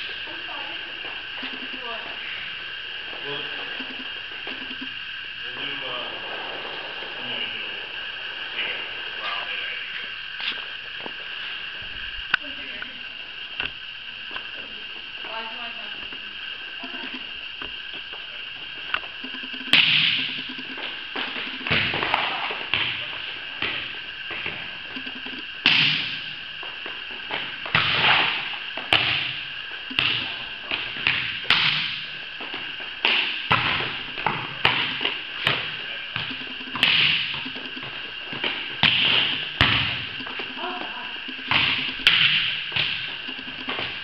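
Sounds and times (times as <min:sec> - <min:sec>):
volleyballs struck by hand: 0:19.7 - 0:20.3, 0:29.9 - 0:32.0, 0:33.0 - 0:40.4, 0:41.3 - 0:44.0.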